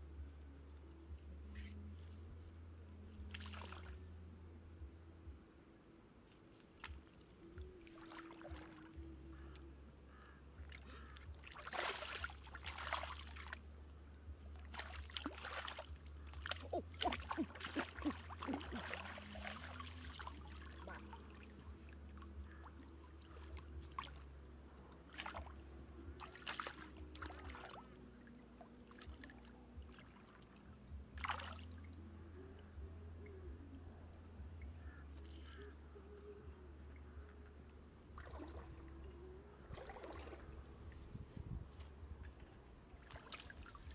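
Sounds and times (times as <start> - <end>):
steady low hum: 0.0 - 43.9
shallow water splashing: 3.1 - 4.1, 6.5 - 32.2, 34.8 - 43.9.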